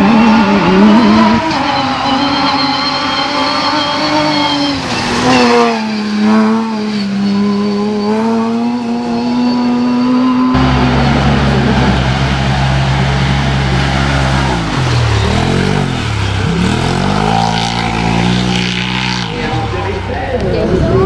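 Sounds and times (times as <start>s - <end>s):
rally car engines running hard: 0.0s - 21.0s
rough low engine sound: 10.5s - 21.0s.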